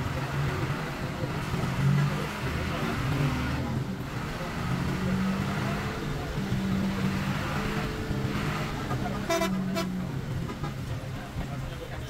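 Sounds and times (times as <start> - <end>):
bus engine droning: 0.0 - 12.0
road noise: 0.0 - 12.0
horn toot: 8.8 - 10.8.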